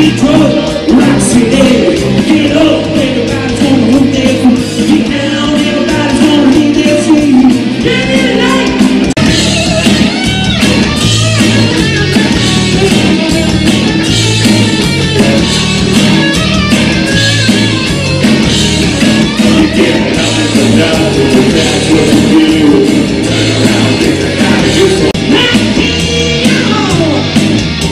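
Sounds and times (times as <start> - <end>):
man singing: 0.0 - 9.1, 19.4 - 27.3
drum kit: 0.0 - 27.9
electric guitars: 0.0 - 27.9.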